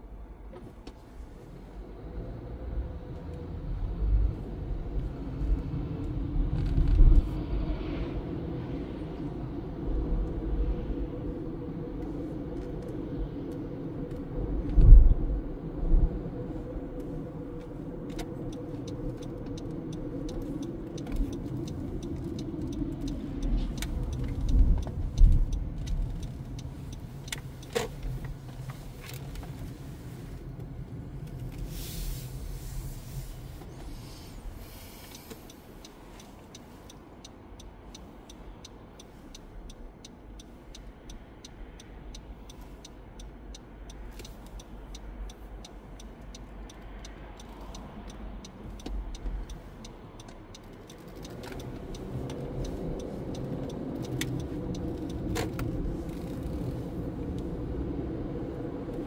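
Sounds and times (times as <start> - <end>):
car engine and road rumble: 0.0 - 59.0
regular ticking: 18.1 - 29.2, 35.1 - 57.0.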